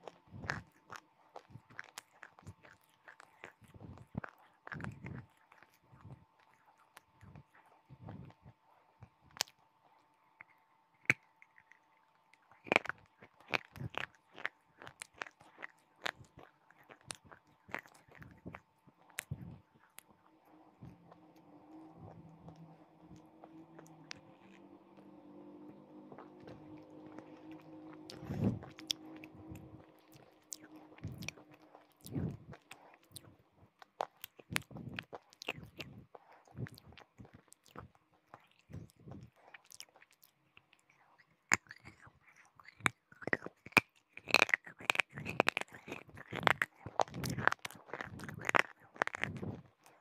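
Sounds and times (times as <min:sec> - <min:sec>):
biting and crunching clay: 0:00.0 - 0:08.4, 0:10.4 - 0:20.1, 0:26.1 - 0:40.4, 0:41.2 - 0:50.0.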